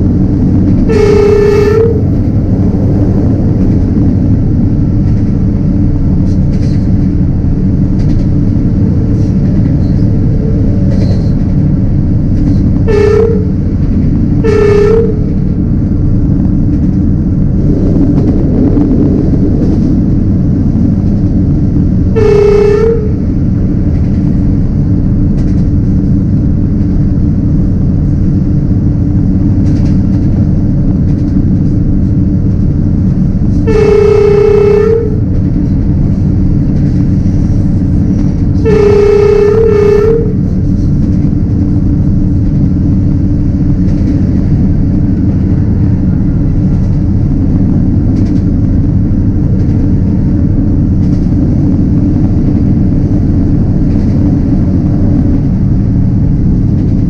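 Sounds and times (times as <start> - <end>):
diesel locomotive rumble: 0.0 - 57.0
train horn blasts: 0.8 - 2.4, 12.8 - 15.5, 22.1 - 23.3, 33.5 - 35.4, 38.5 - 40.9.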